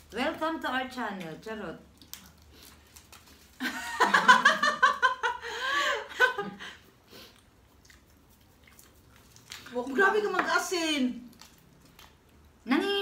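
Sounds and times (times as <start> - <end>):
women laughing: 3.6 - 6.8.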